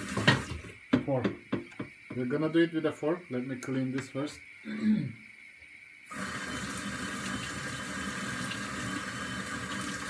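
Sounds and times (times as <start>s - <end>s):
water splashing on mixer: 0.0s - 1.3s, 6.1s - 10.0s
kitchen tap running: 0.0s - 2.5s, 6.0s - 10.0s.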